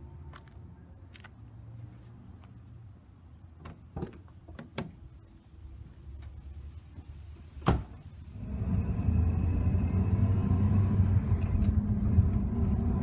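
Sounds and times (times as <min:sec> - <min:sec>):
truck engine running: 0:08.4 - 0:13.0.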